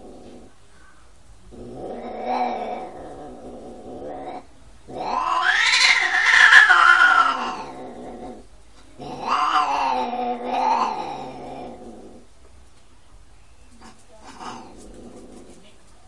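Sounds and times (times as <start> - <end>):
cats yowling: 4.3 - 7.9, 9.0 - 11.8.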